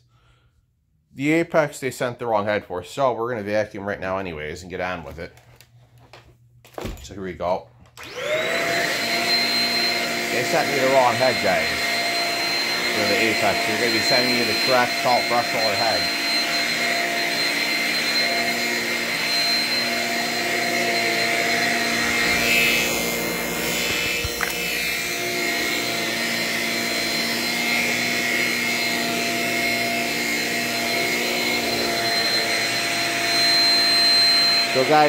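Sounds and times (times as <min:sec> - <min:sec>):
vacuum cleaner motor whine: 0:08.0 - 0:35.0.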